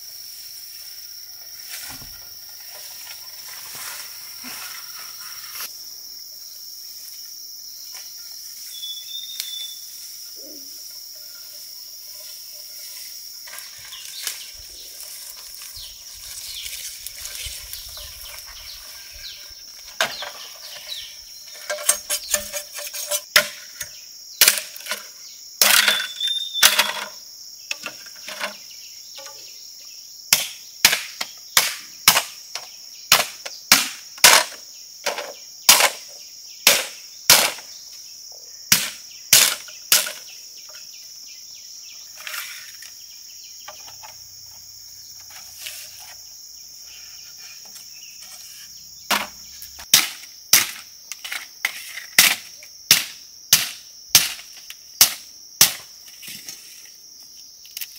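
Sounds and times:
insects droning: 0.0 - 57.9
chopping strikes on wood: 30.3 - 32.4, 33.1 - 36.0, 36.7 - 37.6, 38.7 - 40.2, 49.1 - 50.8, 52.2 - 54.4, 55.0 - 55.9.

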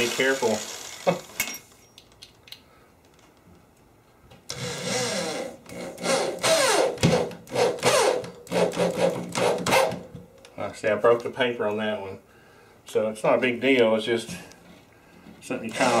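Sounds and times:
electric drill driving screw: 0.0 - 1.4, 4.5 - 10.0, 15.7 - 16.0.

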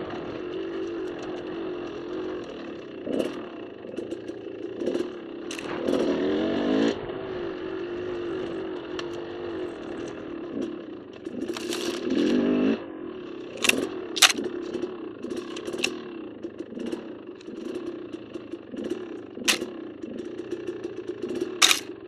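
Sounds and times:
dirt bike engine revving: 0.0 - 22.0
sharp knocks and clatter: 10.6 - 12.4, 13.5 - 22.0.

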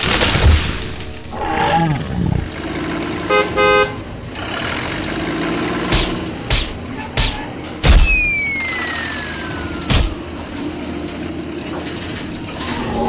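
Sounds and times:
car horn honking: 3.2 - 4.1
gliding wavering pitched effect: 8.3 - 11.7.

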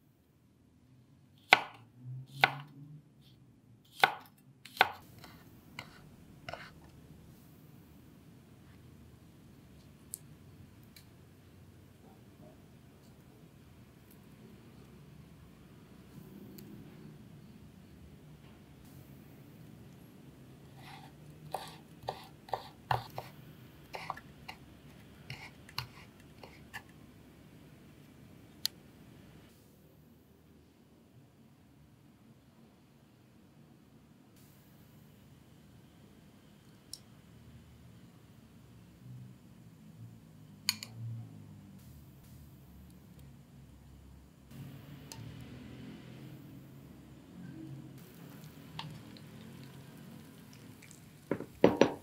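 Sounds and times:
knife cutting on wooden board: 20.8 - 23.3
knife tapping on cutting board: 51.3 - 52.0.

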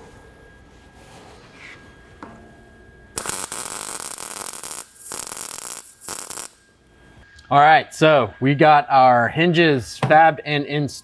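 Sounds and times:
welding arc crackling: 3.1 - 6.7.

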